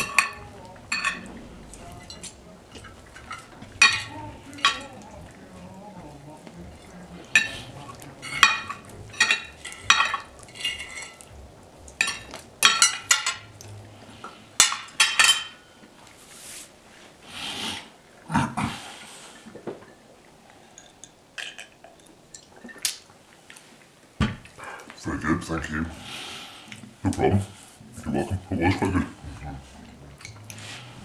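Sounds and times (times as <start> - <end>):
cutlery clinking on plate: 0.0 - 1.4, 2.0 - 5.0, 7.4 - 11.3, 12.0 - 13.5, 14.6 - 15.7
cutlery scraping plate: 0.0 - 5.0, 7.2 - 11.3, 12.0 - 13.5, 14.2 - 15.7.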